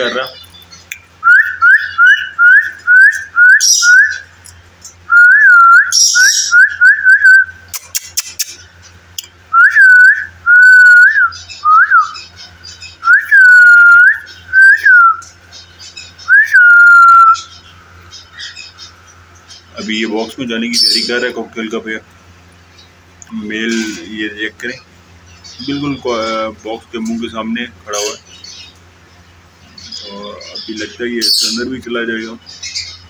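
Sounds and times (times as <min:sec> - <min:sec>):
bird squawks: 0:00.0 - 0:04.3, 0:05.8 - 0:09.0, 0:29.7 - 0:33.0
birds chirping: 0:00.0 - 0:33.0.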